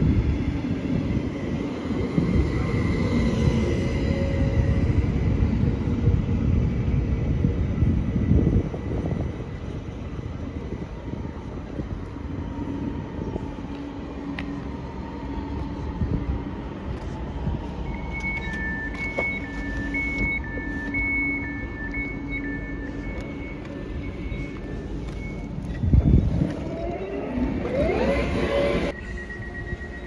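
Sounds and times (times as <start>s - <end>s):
train rumbling: 0.0s - 30.0s
electronic two-tone beep: 17.9s - 26.4s.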